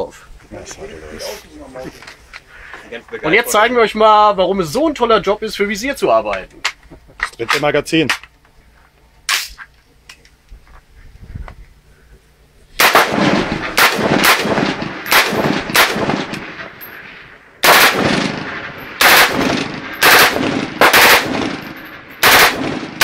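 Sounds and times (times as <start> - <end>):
rifle shots with echo: 12.8 - 23.0.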